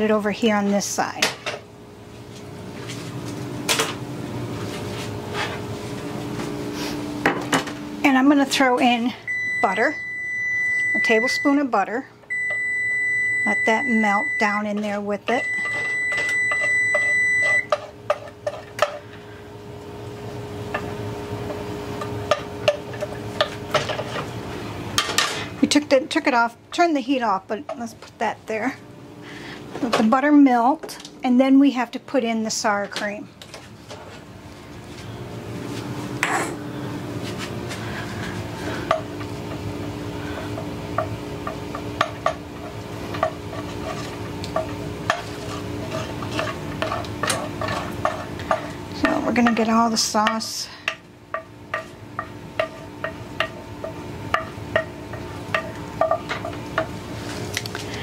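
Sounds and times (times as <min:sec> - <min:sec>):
steady low hum: 0:00.0 - 0:58.0
kitchen timer beep: 0:09.3 - 0:11.7, 0:12.3 - 0:14.6, 0:15.3 - 0:17.7
utensil scraping skillet: 0:41.4 - 0:51.0, 0:51.7 - 0:57.6.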